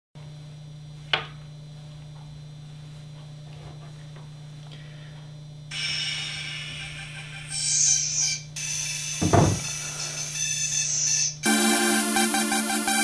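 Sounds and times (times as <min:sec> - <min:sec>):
low electrical hum: 0:00.2 - 0:13.0
bright hissing: 0:05.7 - 0:11.4.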